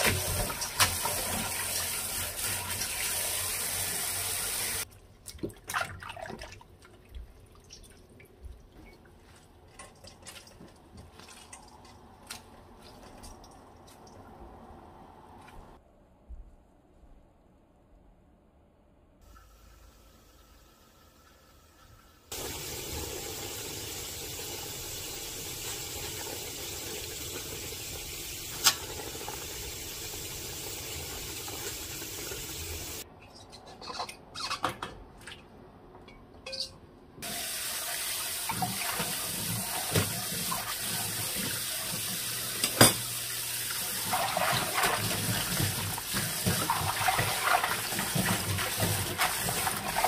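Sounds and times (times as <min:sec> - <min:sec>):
tap water running into sink: 0:00.0 - 0:04.8, 0:22.1 - 0:33.0, 0:37.2 - 0:50.0.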